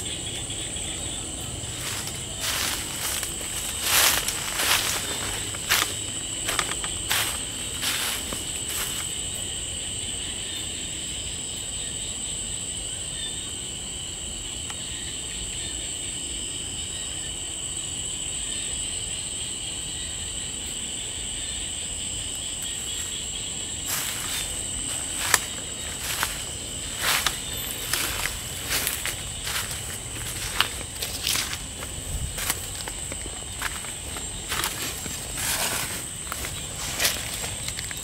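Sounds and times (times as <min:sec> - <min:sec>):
night insects chirring: 0:00.0 - 0:38.0
footsteps through brush: 0:01.4 - 0:09.4, 0:22.6 - 0:38.0.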